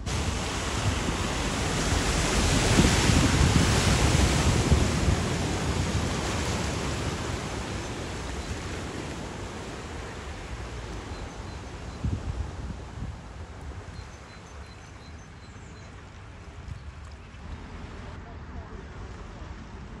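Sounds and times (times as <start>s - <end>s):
car splashing through water: 0.0s - 14.8s.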